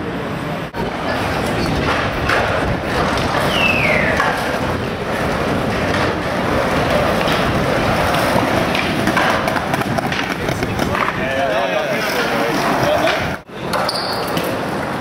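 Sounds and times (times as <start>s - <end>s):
wind noise on microphone: 0.7s - 11.6s.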